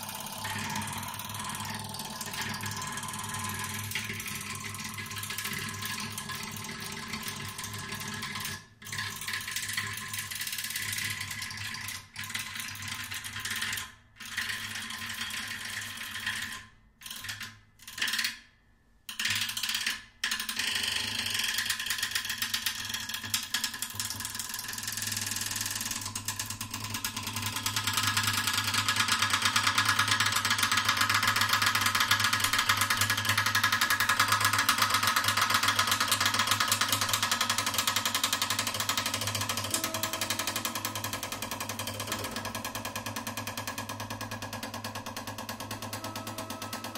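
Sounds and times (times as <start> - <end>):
mechanical agitator drone: 36.4 - 46.9
ringing guitar strings: 39.7 - 42.4.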